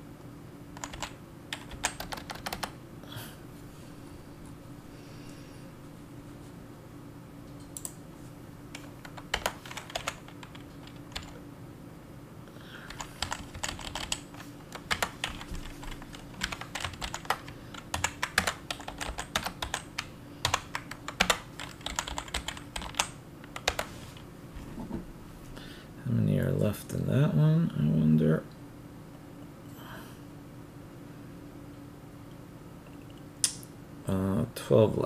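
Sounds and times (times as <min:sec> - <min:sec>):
faint steady hum: 0:00.0 - 0:35.0
typing on computer keyboard: 0:00.8 - 0:02.8, 0:08.8 - 0:11.4, 0:12.9 - 0:23.9.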